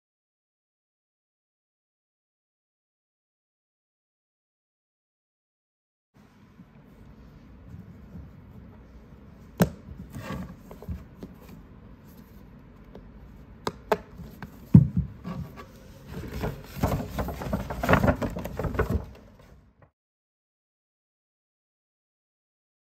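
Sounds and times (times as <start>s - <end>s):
paper bag rustling and crinkling: 15.3s - 19.6s.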